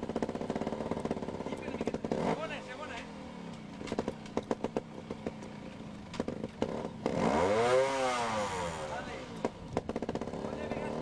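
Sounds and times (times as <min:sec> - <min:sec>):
clicks and knocks of motorcycle: 0:00.0 - 0:07.7, 0:09.4 - 0:10.4
motorcycle engine revving: 0:00.0 - 0:11.0.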